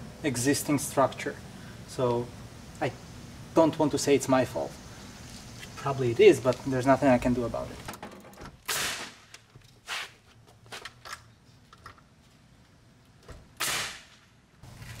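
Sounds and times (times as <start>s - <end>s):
nail gun shots: 8.6s - 9.3s, 13.6s - 14.2s.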